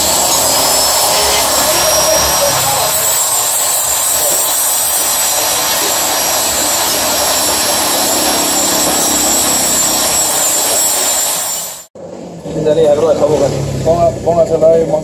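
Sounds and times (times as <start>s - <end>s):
rotary tool grinding metal: 0.0s - 11.8s.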